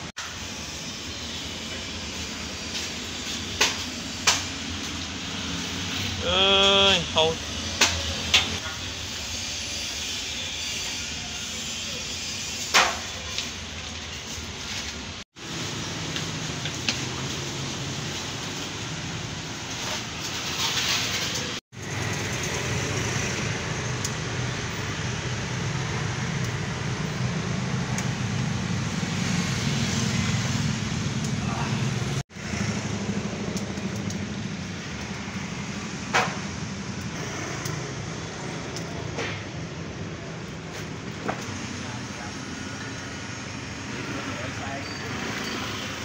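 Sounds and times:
traffic hum: 0.0s - 46.0s.

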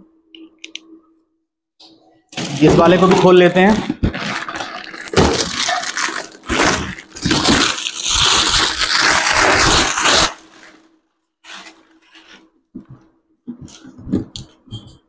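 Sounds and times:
plastic wrap crinkling and tearing: 2.4s - 12.5s.

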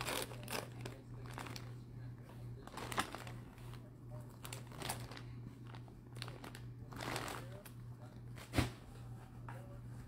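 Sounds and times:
plastic bag crinkling: 0.0s - 1.8s, 2.6s - 7.8s
faint low hum: 0.0s - 10.0s.

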